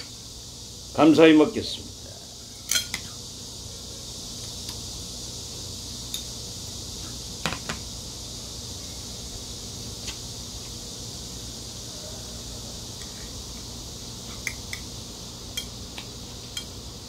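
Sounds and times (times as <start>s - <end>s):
background hiss: 0.0s - 17.0s.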